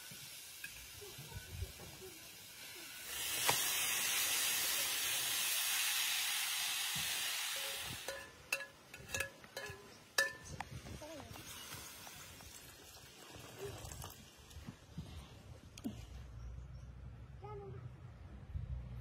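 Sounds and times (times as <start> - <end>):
steady hiss: 0.0 - 14.6
kitchen utensils clinking: 7.7 - 10.6.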